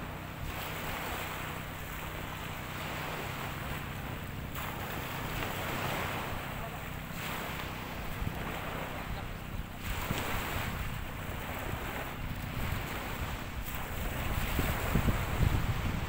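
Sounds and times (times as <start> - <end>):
small waves washing in shallows: 0.0 - 16.0
wind buffeting microphone: 0.0 - 16.0.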